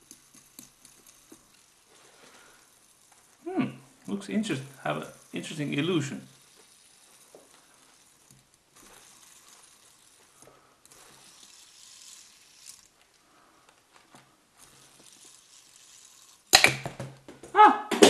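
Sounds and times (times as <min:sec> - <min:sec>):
faint toy clicks: 0:00.0 - 0:13.9, 0:14.6 - 0:16.7.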